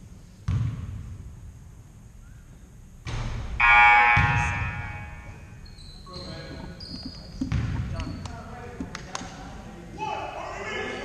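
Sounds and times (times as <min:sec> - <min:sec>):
scoreboard horn: 0:03.6 - 0:05.6.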